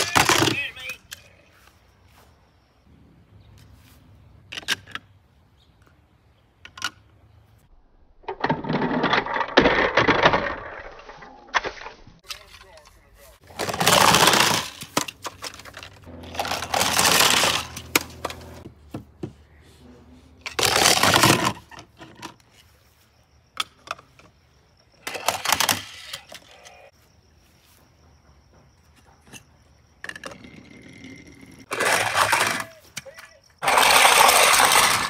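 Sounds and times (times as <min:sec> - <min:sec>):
toy cars rattling on plastic ramp: 0:08.3 - 0:11.3, 0:13.5 - 0:18.6, 0:20.4 - 0:22.4, 0:25.0 - 0:26.8, 0:30.0 - 0:35.0.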